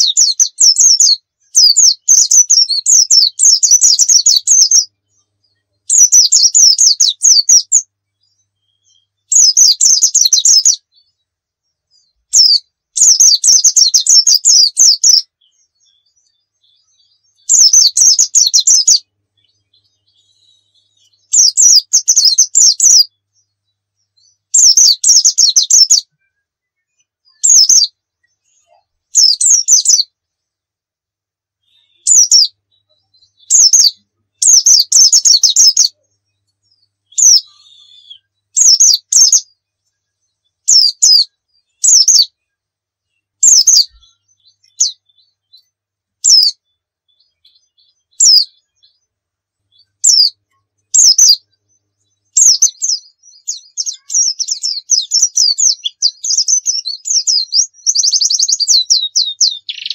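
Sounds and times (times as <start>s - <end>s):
bird rapid high twittering: 0.0s - 5.2s, 5.9s - 7.9s, 8.7s - 11.1s, 12.2s - 23.2s, 24.4s - 26.1s, 27.3s - 30.1s, 31.8s - 36.0s, 37.1s - 39.5s, 40.7s - 42.3s, 43.4s - 45.6s, 46.2s - 49.0s, 49.7s - 51.5s, 52.3s - 59.9s.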